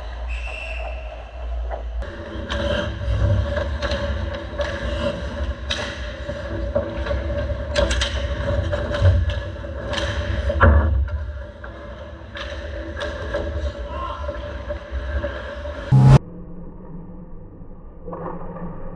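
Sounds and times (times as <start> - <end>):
hockey sticks and puck clacking: 2.2 - 13.8
steady hum: 15.9 - 16.2.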